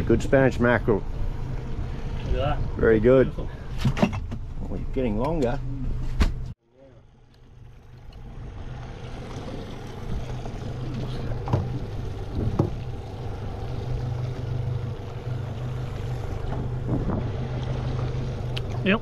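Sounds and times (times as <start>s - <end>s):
outboard motor idling: 6.9s - 19.0s
wind noise on microphone: 16.5s - 17.5s.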